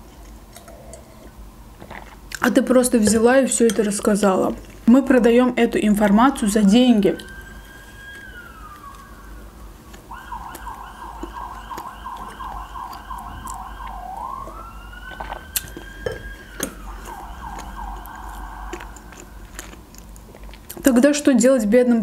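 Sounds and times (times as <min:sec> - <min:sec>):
siren yelp: 0:06.0 - 0:19.9
siren wail: 0:06.2 - 0:20.2.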